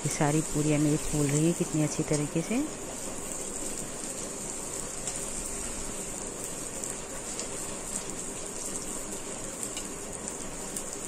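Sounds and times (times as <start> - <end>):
frying in hot oil sizzling: 0.0 - 11.0.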